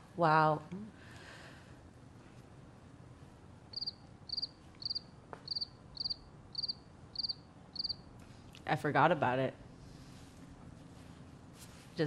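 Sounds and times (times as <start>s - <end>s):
crickets chirping: 3.7s - 8.0s.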